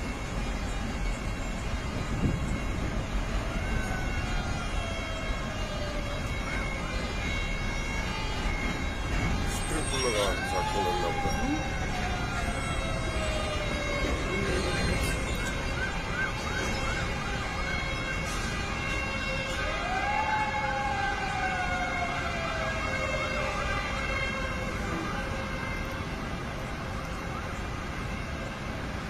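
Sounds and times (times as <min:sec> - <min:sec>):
city traffic rumble: 0:00.0 - 0:29.0
siren wail: 0:00.0 - 0:29.0
siren yelp: 0:00.0 - 0:29.0.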